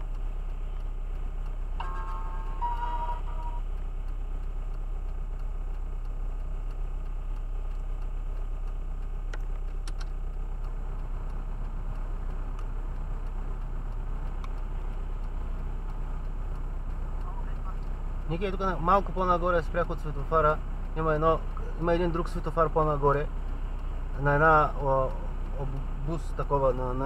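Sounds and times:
car engine idling: 0.0s - 27.0s
faint clicks: 0.0s - 27.0s
short electronic tone: 1.8s - 3.6s.

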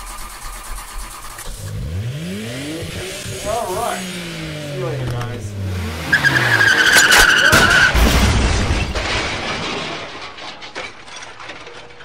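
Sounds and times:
tire squeal: 5.9s - 8.0s
glass shattering and debris clattering: 6.8s - 12.0s
crash boom: 6.9s - 10.8s.

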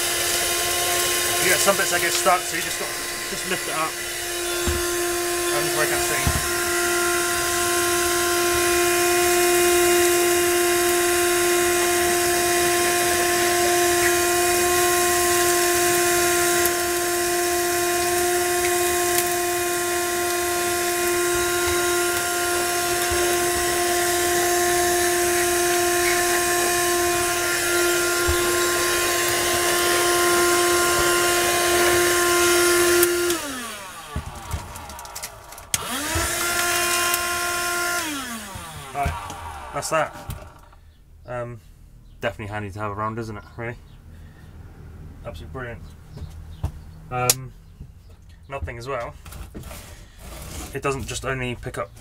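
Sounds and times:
vacuum cleaner motor whine: 0.0s - 40.8s
vacuum motor spinning down: 0.0s - 40.8s.

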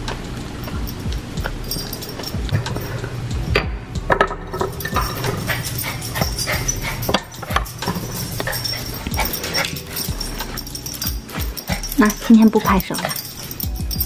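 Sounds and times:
dog whimpering and yipping: 5.0s - 13.7s.

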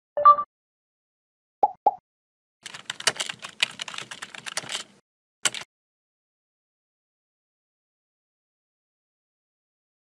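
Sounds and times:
keyboard typing clicks: 2.6s - 5.7s.

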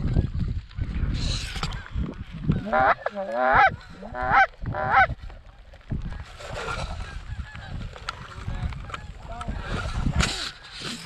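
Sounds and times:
goose honking: 2.6s - 5.1s.

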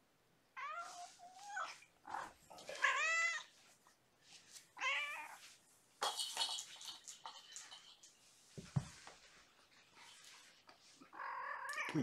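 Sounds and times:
cat meowing: 0.6s - 3.5s.

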